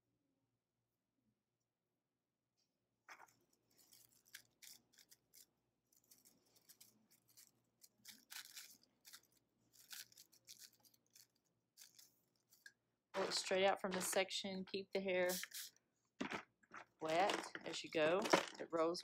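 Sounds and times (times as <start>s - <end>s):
paper wrap rustling: 3.1s - 14.1s
comb through wet hair: 15.2s - 15.7s.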